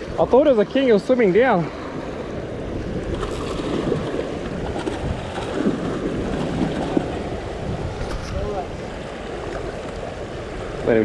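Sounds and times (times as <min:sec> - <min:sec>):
wind on microphone: 0:01.8 - 0:11.0
sea swell washing against rock: 0:02.7 - 0:10.8.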